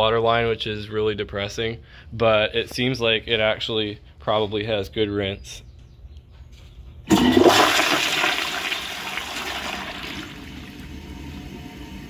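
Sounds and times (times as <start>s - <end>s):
water running: 7.1s - 11.6s
toilet flushing: 7.1s - 12.0s.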